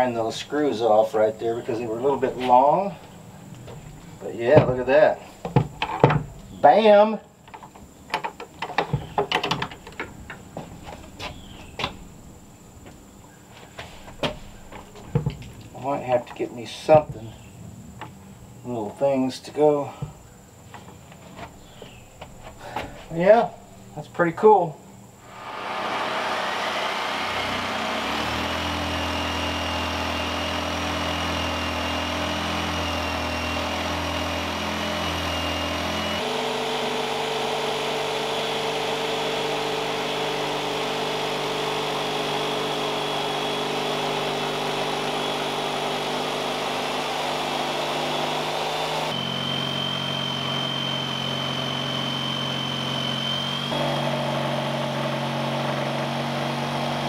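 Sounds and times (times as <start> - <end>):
jigsaw cutting wood: 25.2 - 57.0.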